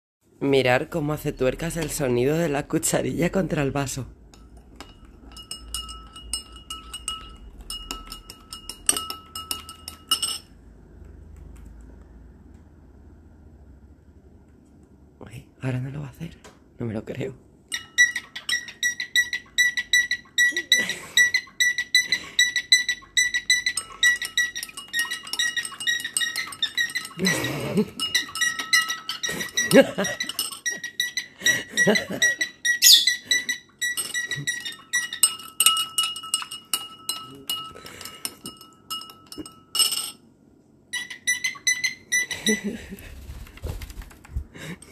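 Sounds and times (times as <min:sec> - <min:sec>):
teaspoon clinking in glass: 0:04.3 - 0:10.6, 0:17.7 - 0:40.2
cockatiel whistled chirps: 0:32.8 - 0:33.3.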